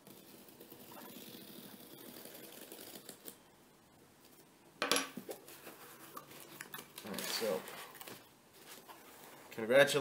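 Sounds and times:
cardboard rustling: 0:05.4 - 0:09.5.

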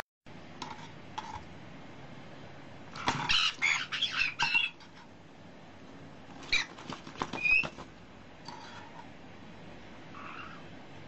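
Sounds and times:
parrots squawking and chirping: 0:02.9 - 0:05.1, 0:06.4 - 0:07.8, 0:10.1 - 0:10.7.

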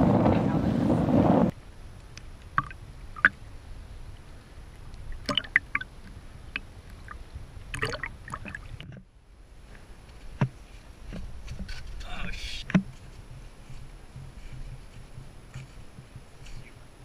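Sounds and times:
water lapping and splashing: 0:05.0 - 0:09.0.

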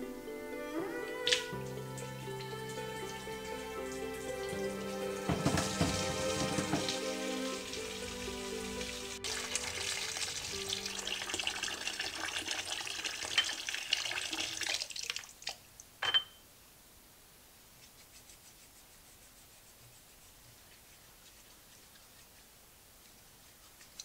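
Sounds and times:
soft background music: 0:00.0 - 0:12.4
tap water splashing into sink: 0:04.5 - 0:08.1
sharp knocks: 0:05.3 - 0:07.0.

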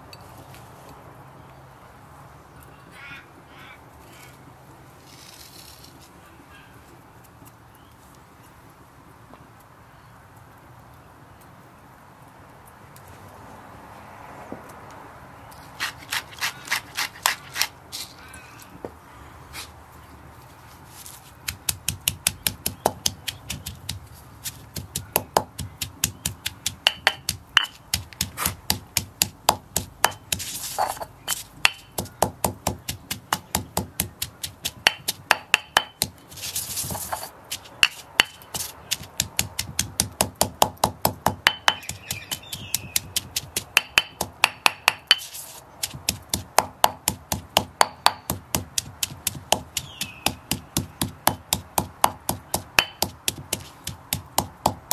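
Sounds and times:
stone pestle pounding in mortar: 0:21.5 - 0:36.2, 0:37.0 - 0:54.9.

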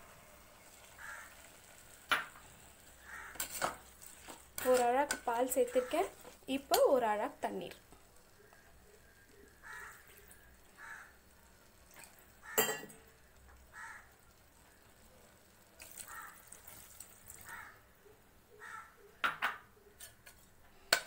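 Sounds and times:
water pouring into a pot: 0:00.0 - 0:06.5, 0:08.4 - 0:17.7
faint bird calls: 0:03.0 - 0:03.4, 0:08.3 - 0:11.3, 0:17.4 - 0:20.0.

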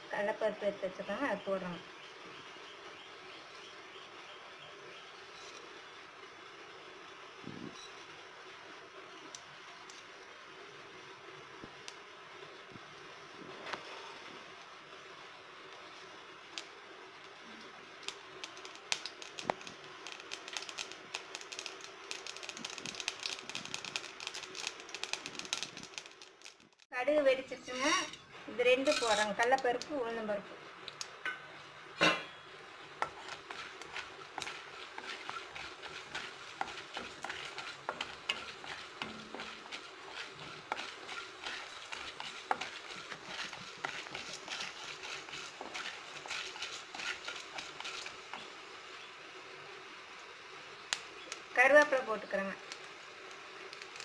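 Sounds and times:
mustard seeds popping in oil: 0:11.6 - 0:12.1, 0:15.6 - 0:26.9, 0:28.8 - 0:30.2, 0:30.8 - 0:31.5, 0:32.3 - 0:49.0, 0:50.1 - 0:54.0
wooden spatula stirring: 0:18.0 - 0:26.9, 0:32.8 - 0:48.6.

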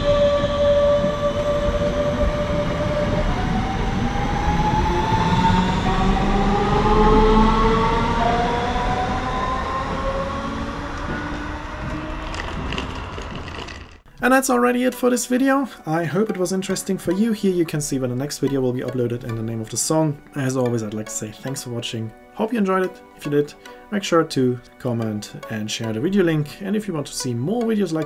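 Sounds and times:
electric train drive whining: 0:00.0 - 0:14.1
train rumbling on rails: 0:00.0 - 0:14.1.

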